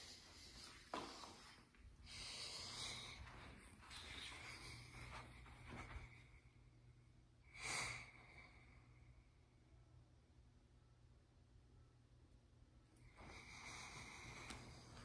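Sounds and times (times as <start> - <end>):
faint breathing: 0.0 - 9.7, 13.0 - 15.0.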